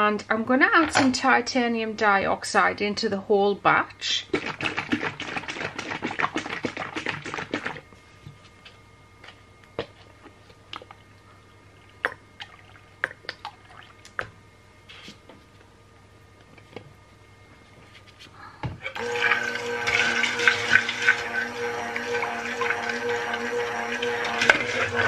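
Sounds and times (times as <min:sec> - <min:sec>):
faint steady hum: 0:00.0 - 0:25.0
liquid sloshing and splashing: 0:04.3 - 0:07.8, 0:11.8 - 0:14.2
water drips: 0:11.8 - 0:14.3.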